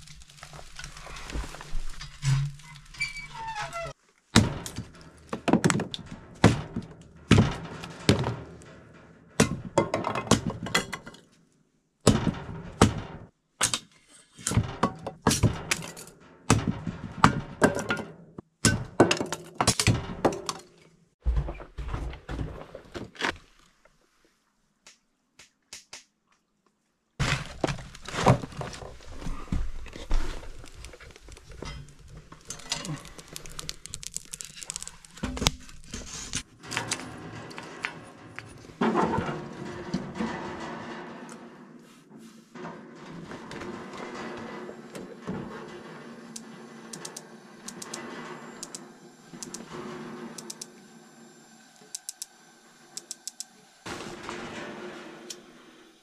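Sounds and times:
gear thunking and clattering: 4.3s - 11.3s, 12.0s - 13.4s, 14.4s - 23.2s, 27.2s - 41.8s, 42.5s - 50.6s, 53.9s - 55.6s.

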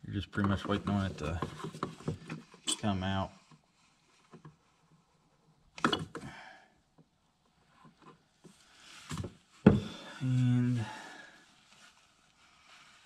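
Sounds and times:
handling clicks and knocks: 0.4s - 2.9s, 5.8s - 6.3s.

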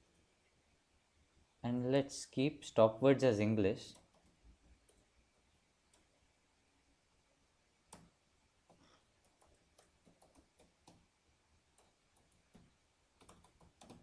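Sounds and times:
faint keyboard typing: 3.9s - 6.3s, 7.9s - 14.0s.

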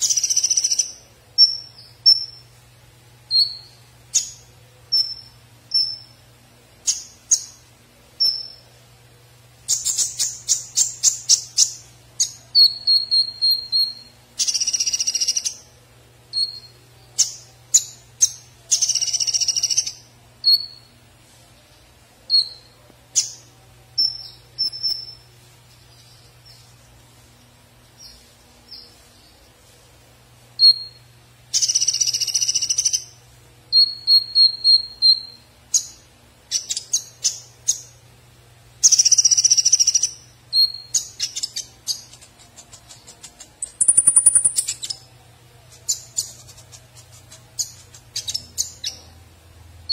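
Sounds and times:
sunbird chirping and whistling: 0.0s - 2.5s, 3.3s - 6.2s, 8.2s - 8.7s, 9.7s - 15.7s, 16.3s - 20.9s, 22.3s - 23.4s, 24.0s - 25.3s, 30.6s - 38.0s, 38.8s - 45.1s, 45.8s - 49.2s.

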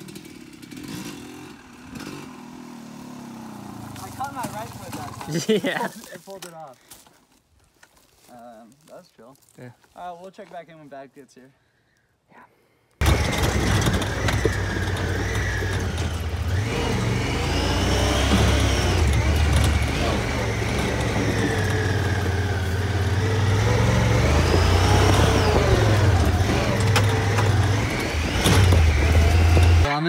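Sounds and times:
utility vehicle engine whine: 13.0s - 30.0s.

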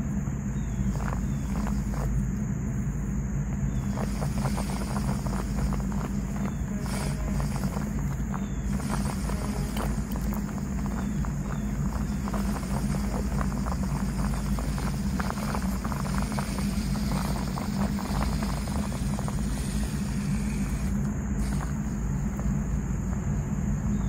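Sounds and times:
steady low rumble: 0.0s - 24.0s
tyres crunching on gravel: 0.3s - 24.0s
small electric motor whining: 3.7s - 22.9s.

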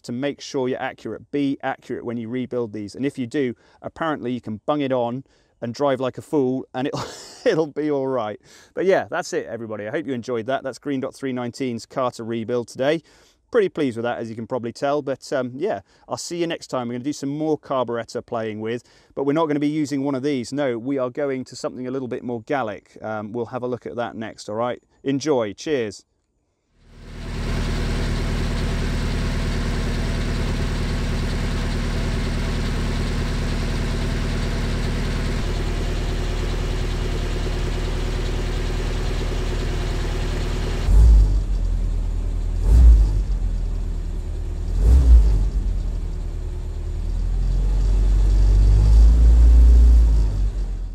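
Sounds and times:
car engine idling and revving: 26.8s - 50.9s.

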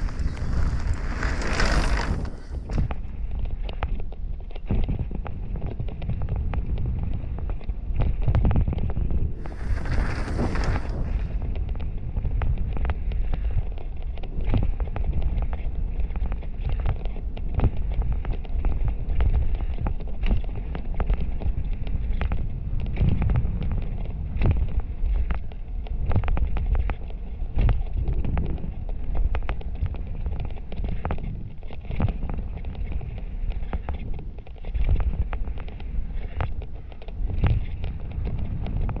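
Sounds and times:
tyres rolling on dirt: 0.0s - 3.1s, 9.4s - 11.6s
bike knocks and rattles: 0.0s - 3.9s, 9.4s - 11.5s
wind rushing over microphone: 0.0s - 39.0s.

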